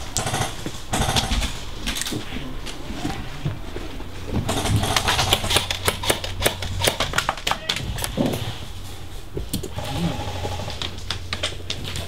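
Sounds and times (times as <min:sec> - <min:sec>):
airsoft gunfire: 0:00.0 - 0:01.6, 0:04.5 - 0:07.6.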